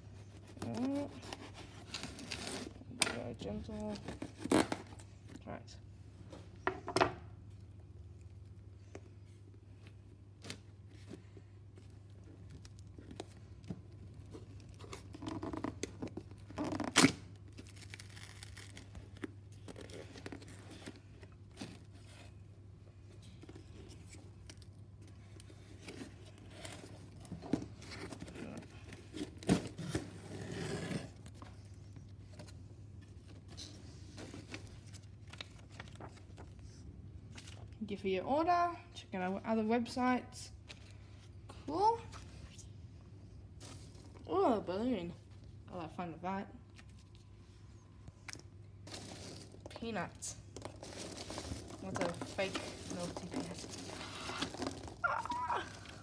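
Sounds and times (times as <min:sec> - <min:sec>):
cardboard tearing and scraping: 0:50.8 - 0:56.0.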